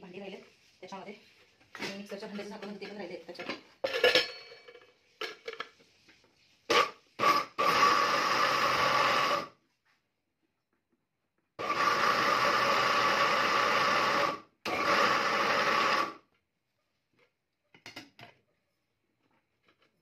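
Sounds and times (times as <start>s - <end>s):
mixer grinder running: 6.8s - 9.5s, 11.6s - 16.2s.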